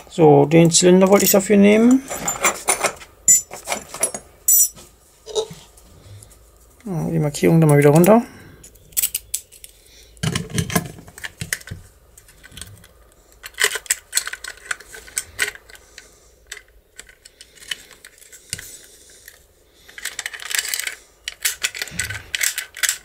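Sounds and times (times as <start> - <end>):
metal lock parts clicking: 7.7 - 9.7, 10.3 - 15.8, 19.9 - 23.0.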